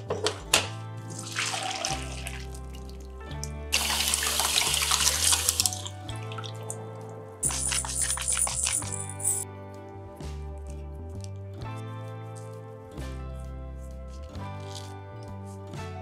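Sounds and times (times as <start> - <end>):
soft background music: 0.0 - 16.0
water splash: 1.1 - 2.8, 3.7 - 6.8.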